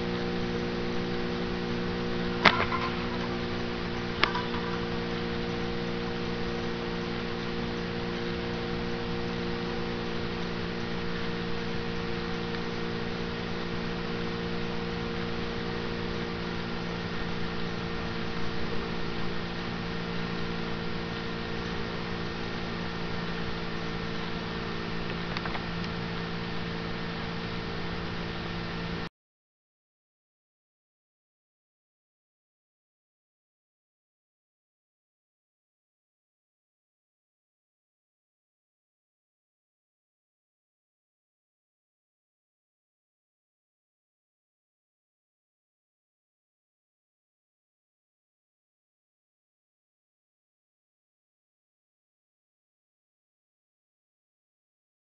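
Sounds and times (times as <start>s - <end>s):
electrical hum: 0.0s - 29.1s.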